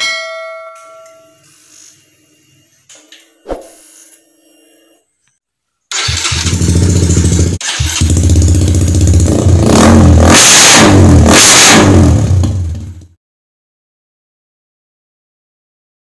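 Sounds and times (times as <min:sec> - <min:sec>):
motorcycle engine revving loud: 0:06.0 - 0:13.2.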